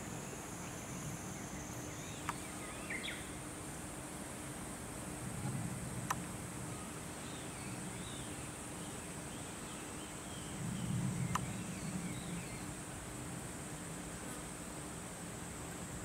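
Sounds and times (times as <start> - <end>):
insect drone: 0.0 - 16.0
faint bird chirps: 0.2 - 3.4.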